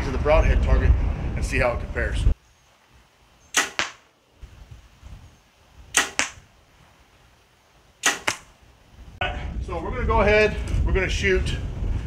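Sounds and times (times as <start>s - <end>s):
bowstring snap: 3.5s - 4.0s, 5.9s - 6.4s, 8.0s - 8.5s
arrow hitting target: 3.5s - 4.1s, 5.9s - 6.5s, 8.0s - 8.5s.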